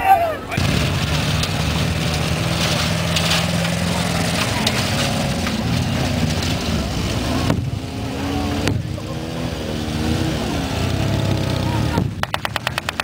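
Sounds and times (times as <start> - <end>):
military lorry engine: 0.0 - 13.0
motorcycle engines: 0.0 - 13.0.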